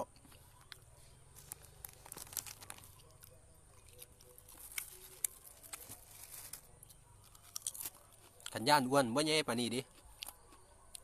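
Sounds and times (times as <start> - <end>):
plastic bag crinkling: 1.3 - 3.2, 3.8 - 6.7.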